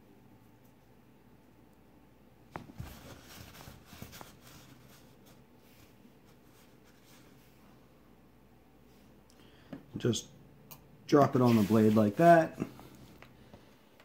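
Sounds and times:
faint rustling: 11.4 - 13.6.

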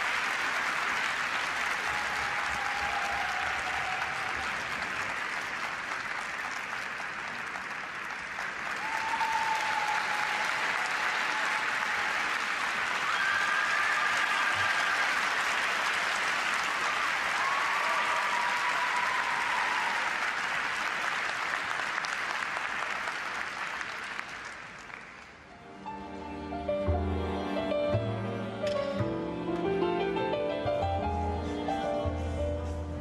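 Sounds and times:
audience applauding: 0.0 - 25.5.

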